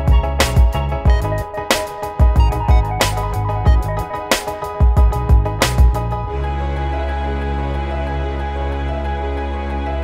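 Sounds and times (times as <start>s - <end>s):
background music with steady beat: 0.0s - 10.0s
deep bass thumps: 0.1s - 1.4s, 2.2s - 4.1s, 4.8s - 6.2s.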